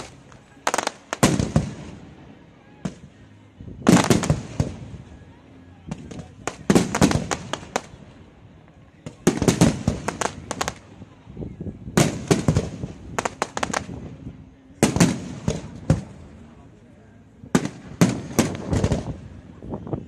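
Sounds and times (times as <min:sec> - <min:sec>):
fireworks bursting: 0:00.0 - 0:16.7, 0:17.5 - 0:19.8.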